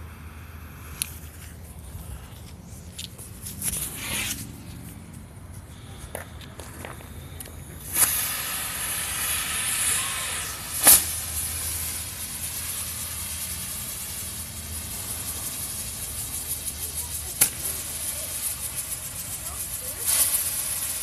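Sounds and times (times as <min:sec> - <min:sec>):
firework fountain hissing: 0:00.0 - 0:21.0
sharp firework pop: 0:07.9 - 0:10.0, 0:10.7 - 0:11.4.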